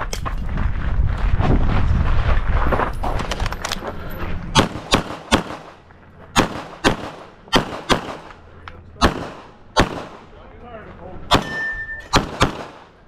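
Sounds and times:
pistol shots with echo: 4.6 - 8.4, 9.0 - 10.3, 11.3 - 13.0.

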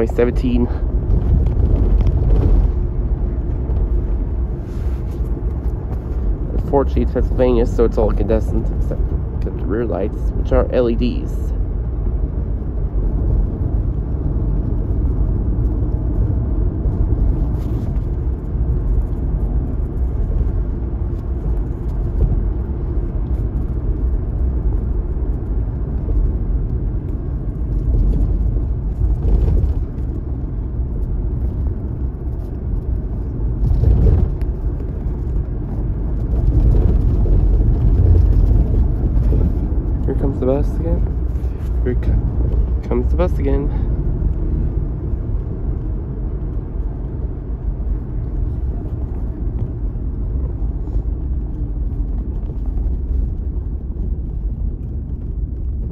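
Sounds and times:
road and engine noise inside car: 0.0 - 55.9.

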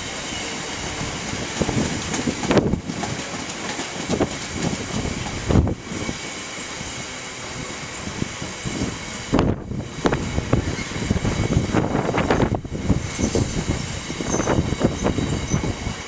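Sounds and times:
train wheels rumbling on rail: 0.0 - 16.0
wind on microphone: 0.9 - 3.2, 4.0 - 16.0
train wagon thumps: 1.6 - 5.7.

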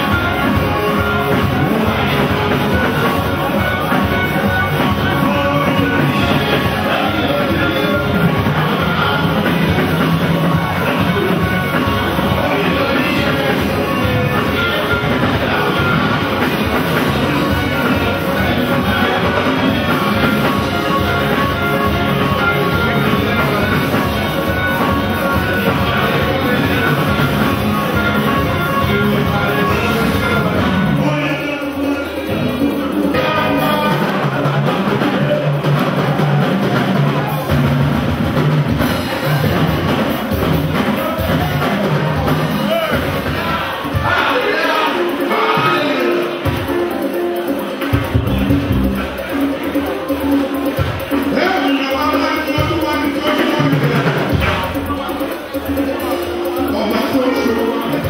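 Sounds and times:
congregation singing: 0.0 - 37.5, 40.9 - 47.0
band with drum kit: 0.0 - 58.0.

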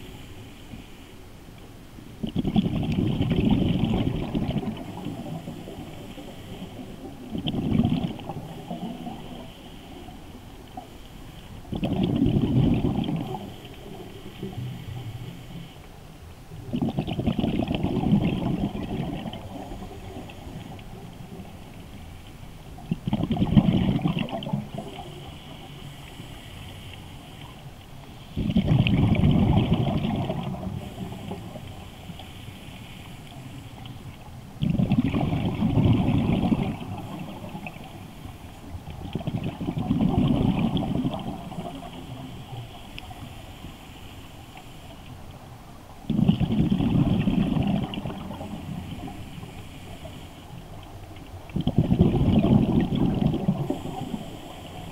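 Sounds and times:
regulator inhale hiss: 0.0 - 1.4, 4.7 - 7.2, 8.4 - 11.8, 13.3 - 16.4, 19.3 - 22.8, 24.6 - 28.5, 30.6 - 34.3, 36.9 - 38.9, 41.4 - 45.6, 48.1 - 51.2, 53.4 - 54.9
exhaled bubbles rushing: 2.2 - 6.1, 6.8 - 9.5, 11.6 - 14.7, 16.6 - 21.4, 22.8 - 25.3, 28.4 - 31.6, 34.6 - 37.9, 38.8 - 42.3, 46.0 - 49.2, 51.5 - 54.9.

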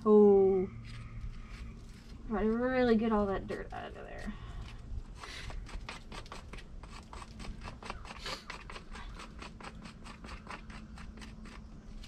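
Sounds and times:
brush scrubbing horse hoof: 5.3 - 12.0.

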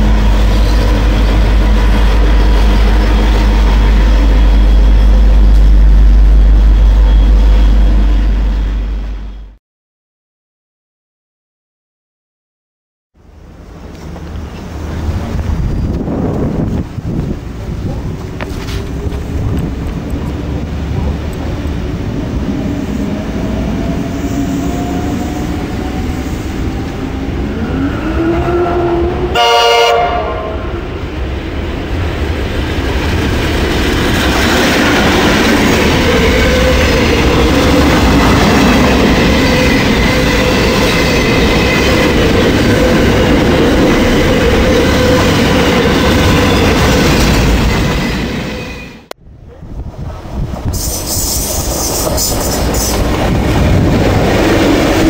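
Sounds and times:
train wheels on rails: 0.0 - 9.4, 13.3 - 30.2, 30.8 - 55.0
diesel train engine: 0.0 - 9.6, 13.2 - 55.0
train horn blast: 27.8 - 30.9.

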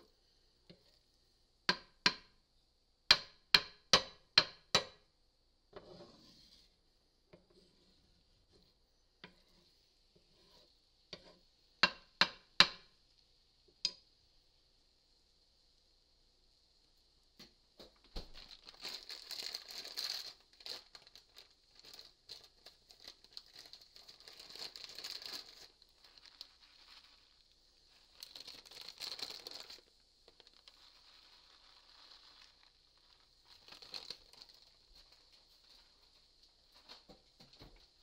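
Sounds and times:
plastic bag crinkling: 18.2 - 36.1.

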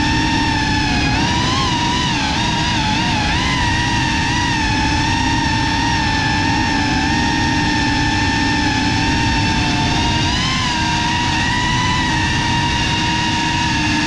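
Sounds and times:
drone motors whining: 0.0 - 14.0
rush of air noise: 0.0 - 14.0.

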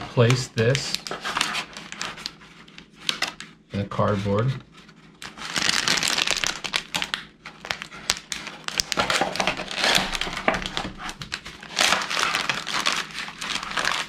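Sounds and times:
plastic pouch crinkling: 5.0 - 14.0.

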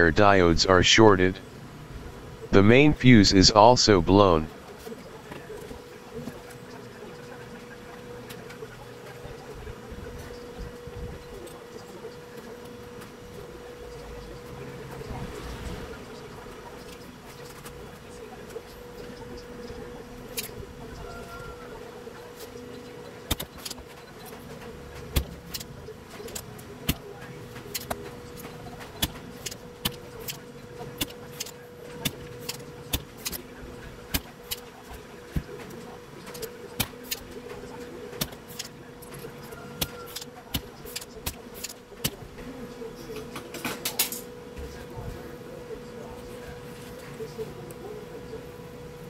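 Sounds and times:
steady hum: 0.0 - 4.5.

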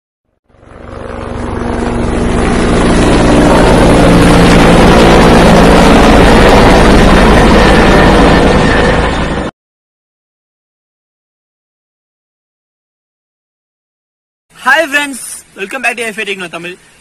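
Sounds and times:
helicopter rotor chopping: 0.5 - 9.5.

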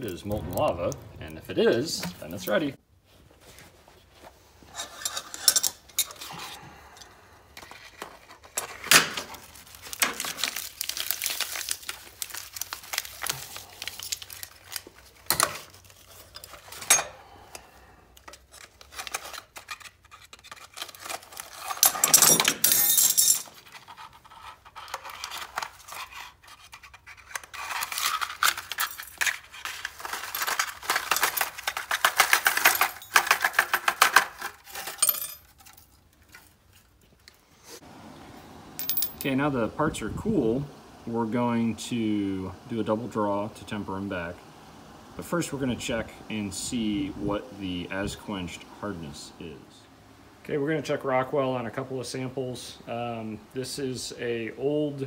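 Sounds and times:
foil crinkling and tearing: 8.2 - 17.5, 18.4 - 21.8
metal parts clinking onto plate: 21.0 - 23.7, 27.6 - 35.8, 38.8 - 39.4.

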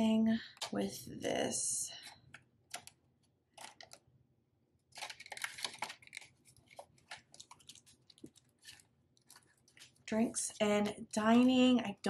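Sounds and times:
banknotes rustling and crinkling: 2.7 - 4.0, 4.8 - 11.2.

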